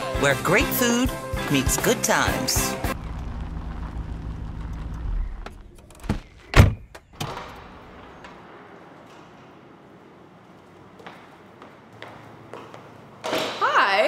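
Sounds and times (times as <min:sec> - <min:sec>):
car door closing thunk: 0:06.0 - 0:07.5.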